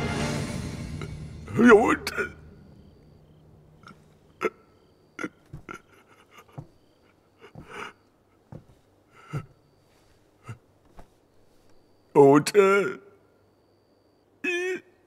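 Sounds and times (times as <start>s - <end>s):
quiet human breaths: 5.5s - 12.0s.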